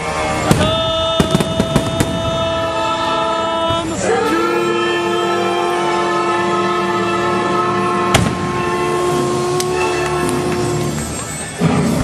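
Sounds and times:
music holding long chords: 0.0s - 12.0s
sharp firework bangs: 0.4s - 2.4s, 8.1s - 8.6s.

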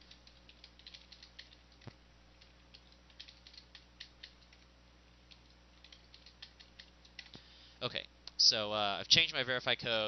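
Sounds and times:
typing on a keyboard: 0.0s - 4.7s, 5.3s - 7.4s.

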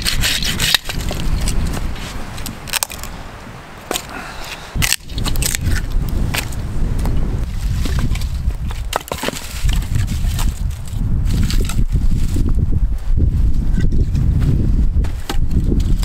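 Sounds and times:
firewood knocking and clattering: 7.8s - 10.5s.

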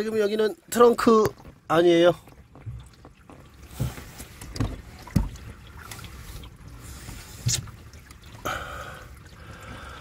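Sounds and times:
hose water spraying on car: 3.2s - 8.4s.

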